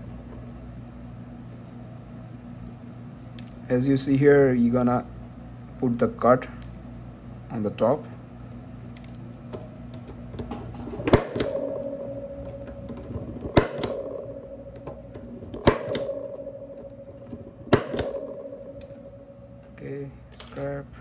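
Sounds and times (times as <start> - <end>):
ringing tone: 11.2 - 20.3.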